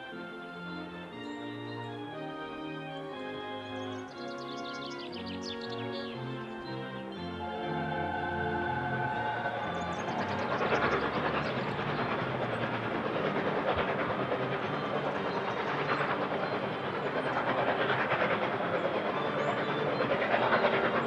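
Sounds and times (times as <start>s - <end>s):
steam locomotive running: 0.0s - 21.0s.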